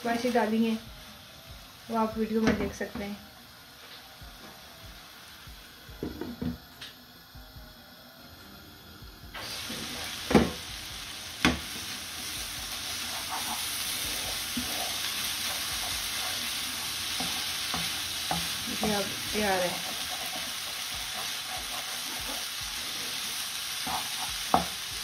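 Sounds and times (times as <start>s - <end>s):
stir fry sizzling in a wok: 0.0s - 6.9s, 8.4s - 25.0s
spatula scraping a pan: 12.7s - 23.2s, 23.8s - 24.6s.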